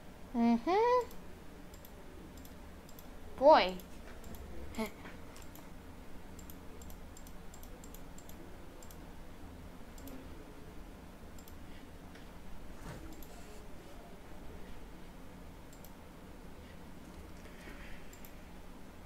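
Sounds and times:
low background hum: 0:00.0 - 0:19.0
computer mouse clicking: 0:01.0 - 0:03.1, 0:03.8 - 0:04.5, 0:05.4 - 0:05.7, 0:06.4 - 0:09.0, 0:11.4 - 0:11.6, 0:13.1 - 0:13.4, 0:15.7 - 0:16.0, 0:17.1 - 0:18.4.

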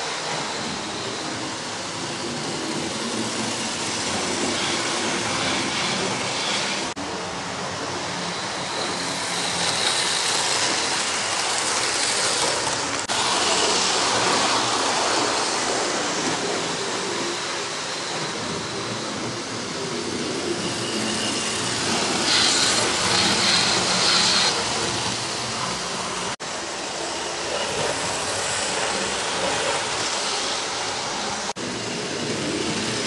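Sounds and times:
wheels rattling on track: 0:00.0 - 0:33.0
model train motors whirring: 0:08.2 - 0:17.8, 0:20.4 - 0:26.4.

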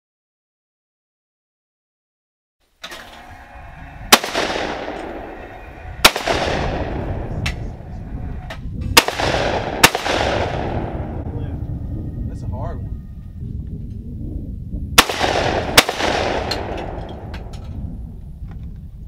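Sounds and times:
shotgun shots echoing: 0:04.1 - 0:07.8, 0:09.0 - 0:11.3, 0:15.0 - 0:17.5.

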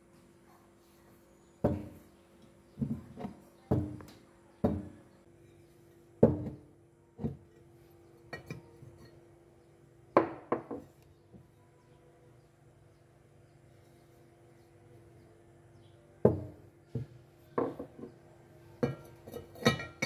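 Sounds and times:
china teapot knocking and clinking: 0:08.3 - 0:09.2, 0:10.2 - 0:10.9, 0:17.6 - 0:18.1, 0:18.8 - 0:20.0.

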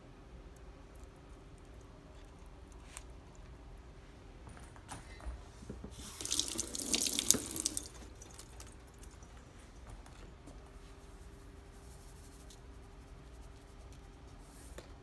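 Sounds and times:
tap water into metal sink: 0:05.9 - 0:08.6.

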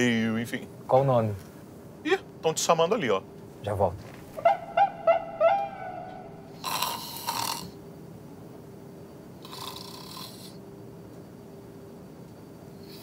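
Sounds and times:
faint steady hum: 0:00.0 - 0:13.0
man snoring: 0:06.5 - 0:07.8, 0:09.4 - 0:10.6.

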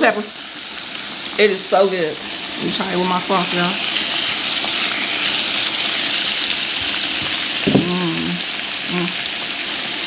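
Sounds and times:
beef sizzling on grill plate: 0:00.0 - 0:10.0.

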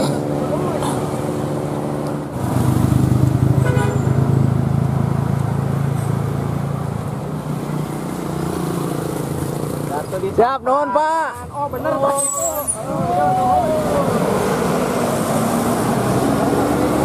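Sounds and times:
vehicle horn toot: 0:03.6 - 0:04.1
diesel coach engine rumbling: 0:11.4 - 0:17.0.

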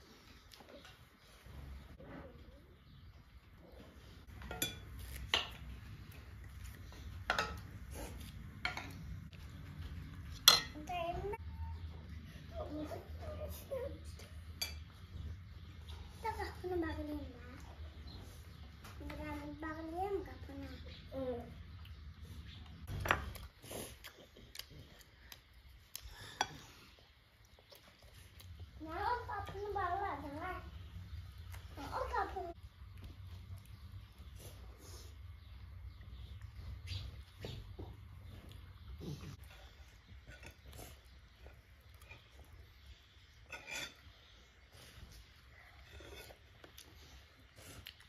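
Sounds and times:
metal utensils clinking on dishes: 0:04.3 - 0:05.6, 0:07.2 - 0:07.8, 0:10.4 - 0:10.9, 0:43.4 - 0:44.2.

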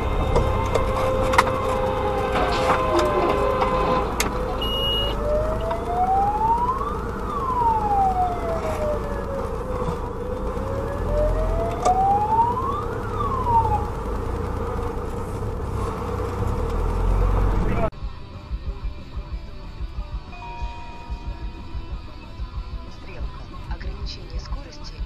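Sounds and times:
fire engine siren wailing: 0:00.0 - 0:17.9
low rumble: 0:00.0 - 0:24.8.

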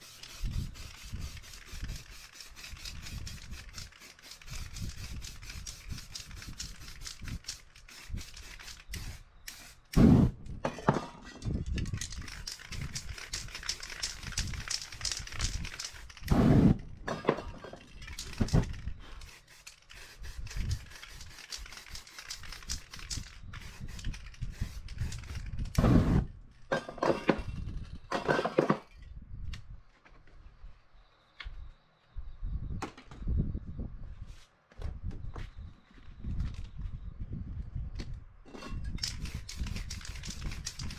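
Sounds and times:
spray paint cans hissing: 0:00.0 - 0:10.4, 0:11.8 - 0:16.8, 0:17.8 - 0:26.2, 0:39.0 - 0:40.9.

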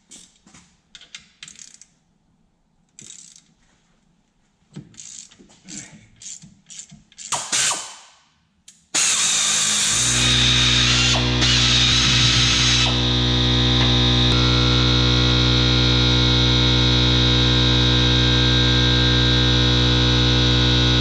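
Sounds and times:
hand ratchet wrench clicking: 0:01.0 - 0:01.9, 0:02.9 - 0:03.6, 0:04.8 - 0:07.9
pneumatic ratchet running: 0:05.0 - 0:07.9, 0:09.0 - 0:12.9.

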